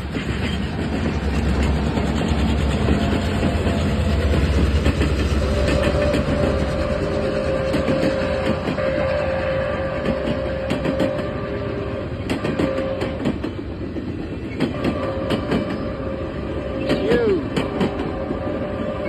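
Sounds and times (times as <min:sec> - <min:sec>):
wheels clicking over rail joints: 0:00.0 - 0:16.0, 0:16.8 - 0:19.0
train cars rumbling past: 0:00.0 - 0:19.0.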